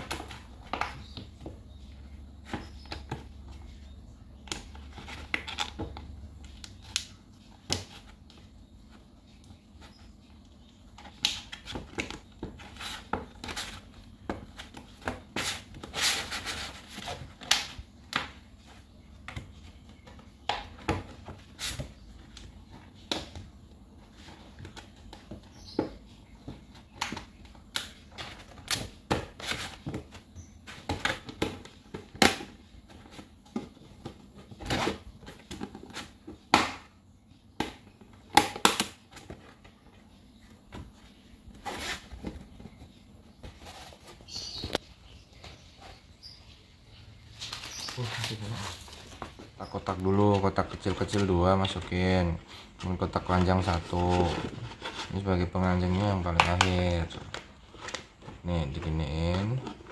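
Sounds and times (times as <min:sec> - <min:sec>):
plastic scraping and rubbing: 0:47.4 - 0:59.9.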